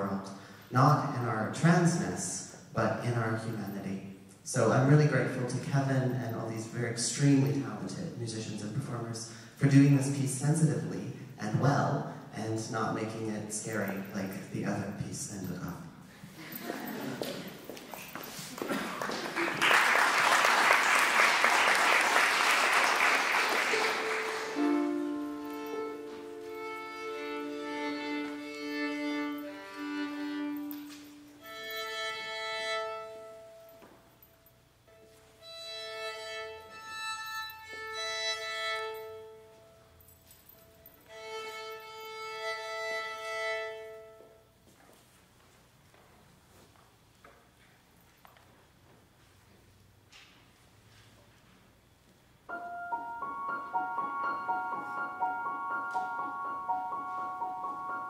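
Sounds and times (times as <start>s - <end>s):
audience applauding: 18.6s - 25.0s
solo violin playing slow notes: 23.8s - 33.8s, 34.9s - 39.8s, 41.0s - 44.4s, 53.7s - 58.0s.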